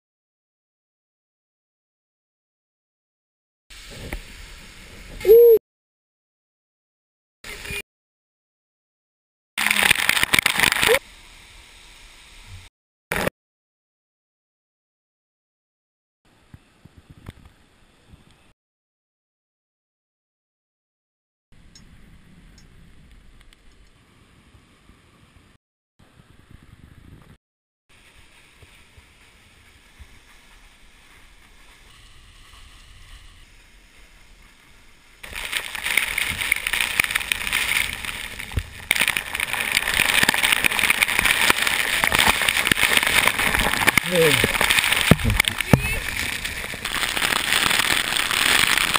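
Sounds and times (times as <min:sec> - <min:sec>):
faint steady hiss: 0:27.9 - 0:38.6
waterfall rushing: 0:35.3 - 0:48.9.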